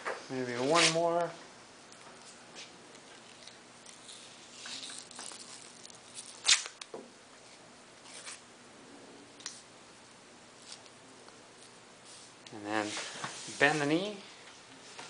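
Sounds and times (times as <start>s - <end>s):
tape tearing: 0.6s - 1.0s, 3.4s - 6.9s
hands rubbing tape: 3.4s - 6.9s
tape peeling off roll: 3.4s - 6.9s.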